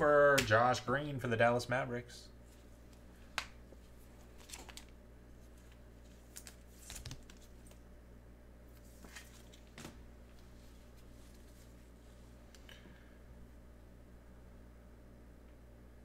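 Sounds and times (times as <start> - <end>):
trading cards rustling and clicking: 4.2 - 7.8, 8.8 - 10.0.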